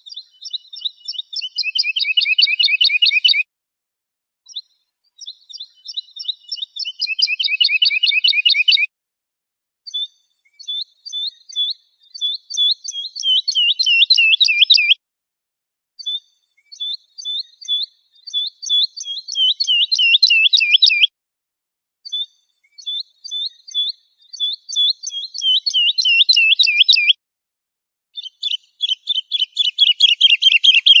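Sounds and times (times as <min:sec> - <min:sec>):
lark singing: 0:00.0 - 0:03.5, 0:04.5 - 0:08.9, 0:09.9 - 0:15.0, 0:16.0 - 0:21.1, 0:22.1 - 0:27.2, 0:28.2 - 0:31.0.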